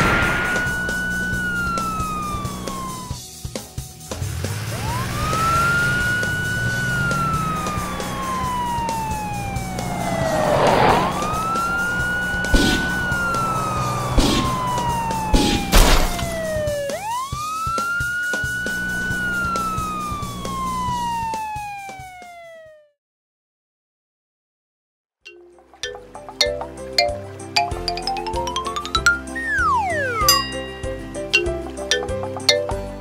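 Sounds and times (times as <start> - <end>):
sharp bangs: 0.0 - 3.1, 7.0 - 17.0
police siren wailing: 0.0 - 3.2, 4.6 - 22.9, 29.2 - 31.0
background music: 0.0 - 21.5, 25.3 - 33.0.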